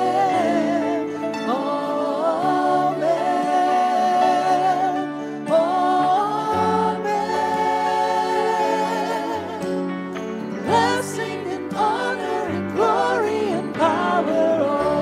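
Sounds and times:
acoustic guitar: 0.0 - 15.0
keyboard: 0.0 - 15.0
worship band singing: 0.0 - 15.0.

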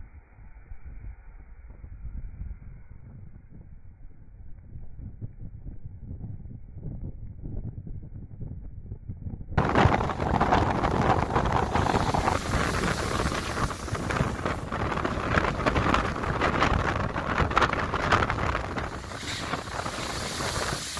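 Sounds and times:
wind buffeting microphone: 2.1 - 20.9
waves breaking against a wall: 9.6 - 20.9.

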